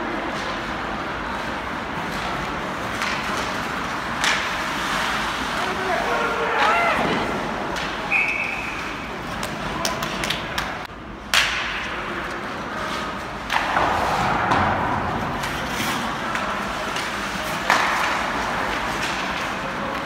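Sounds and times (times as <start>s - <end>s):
crowd noise: 0.0s - 20.0s
hockey sticks knocking puck: 2.0s - 20.0s
high whistle-like tone: 8.1s - 8.8s.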